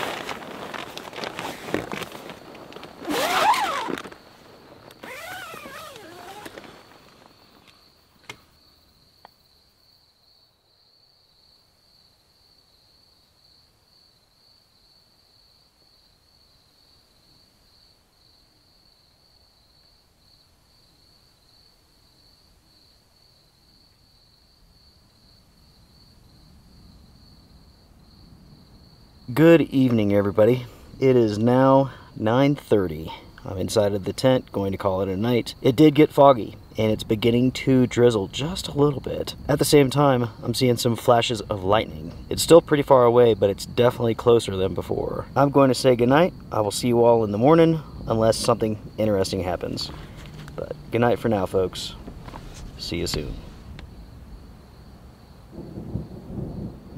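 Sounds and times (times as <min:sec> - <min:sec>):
tent fabric rustling: 0:00.0 - 0:07.9, 0:49.5 - 0:53.8
insect trilling: 0:03.0 - 0:08.8.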